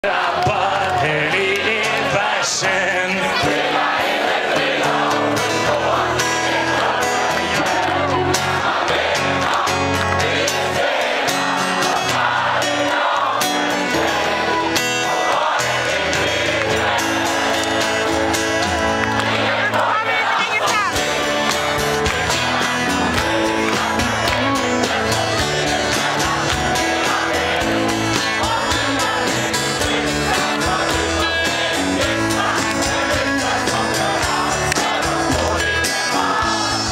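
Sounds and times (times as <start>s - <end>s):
live pop-rock band playing: 0.0s - 36.9s
strummed guitars: 0.0s - 36.9s
keyboard: 0.2s - 36.9s
steady drum beat: 20.6s - 36.9s.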